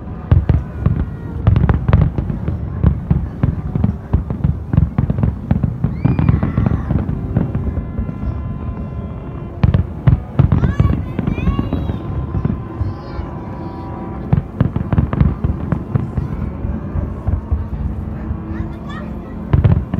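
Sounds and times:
rising firework whistle: 5.3 - 18.0.

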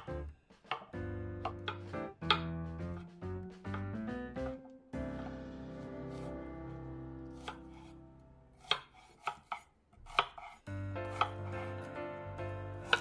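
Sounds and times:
knife chopping on wooden board: 0.0 - 4.6, 7.3 - 7.9, 8.6 - 11.9, 12.8 - 13.0
background music: 0.0 - 8.8, 10.6 - 13.0.

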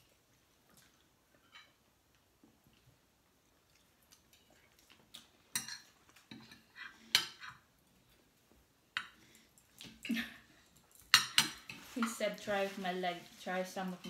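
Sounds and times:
cutlery clinking on plate: 5.5 - 7.6, 11.1 - 12.2.

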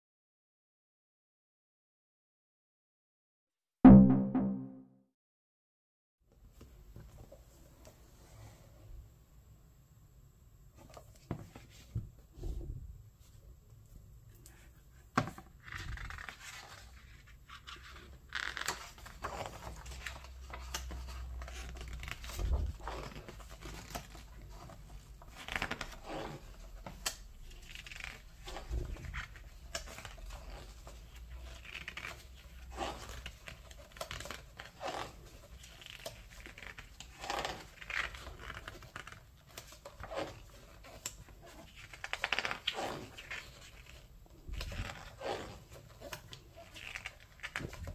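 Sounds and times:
book pages turning: 15.2 - 47.9.

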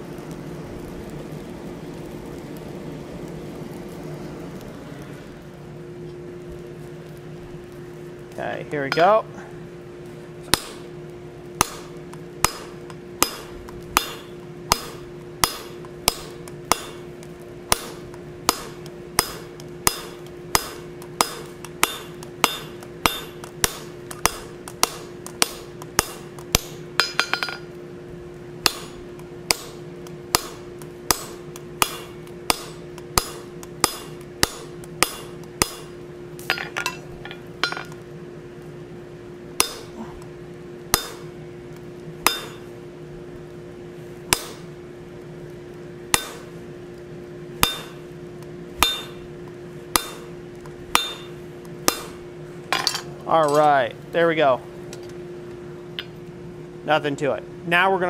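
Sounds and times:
hammer striking punch on hot steel: 8.9 - 9.2, 10.5 - 10.9, 11.6 - 27.8, 28.6 - 38.0, 39.5 - 42.8, 44.2 - 44.8, 46.0 - 46.6, 47.5 - 53.7.

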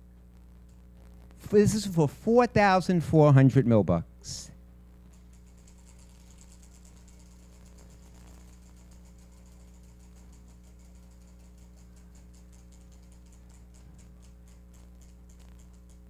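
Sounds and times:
prize wheel clicking: 5.1 - 16.0.

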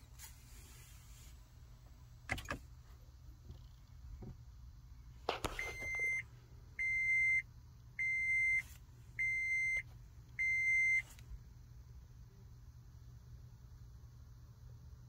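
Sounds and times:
car warning buzzer beeps: 5.6 - 7.4, 8.0 - 11.1.

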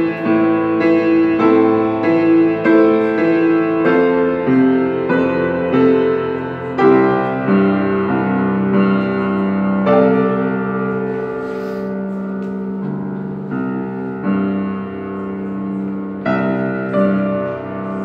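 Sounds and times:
slow piano notes and chords: 0.0 - 18.0.

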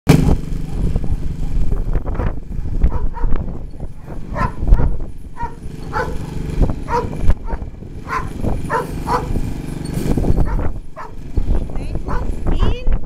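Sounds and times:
dog barking: 0.2 - 1.6, 2.2 - 9.3, 10.5 - 11.2, 12.1 - 12.8.

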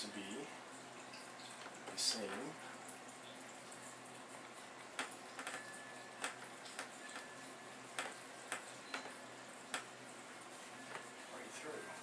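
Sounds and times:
faint room hiss: 0.0 - 12.0
light sharp ticks and clicks: 4.3 - 7.3.

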